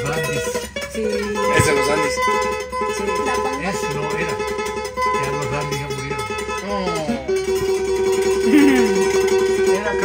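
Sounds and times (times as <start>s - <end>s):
classical guitar playing: 0.0s - 10.0s.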